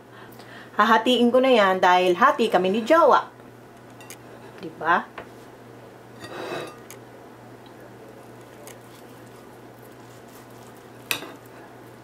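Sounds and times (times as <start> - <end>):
steady low hum: 1.7 - 12.0
soft cutting sounds: 8.2 - 12.0
knife scraping crust: 8.3 - 11.7.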